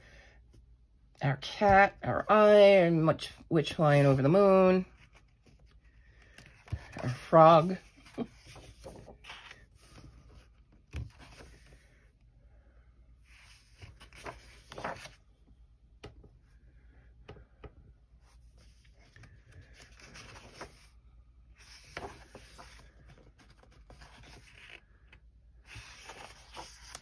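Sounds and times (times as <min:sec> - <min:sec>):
book pages rustling: 0:03.6 - 0:11.9, 0:13.2 - 0:15.3, 0:18.2 - 0:27.0.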